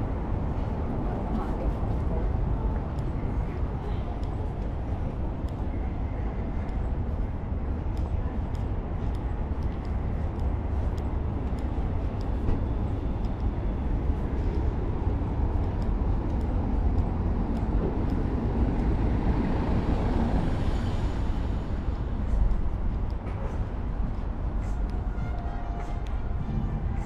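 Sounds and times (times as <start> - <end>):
traffic rumble: 0.0 - 27.0.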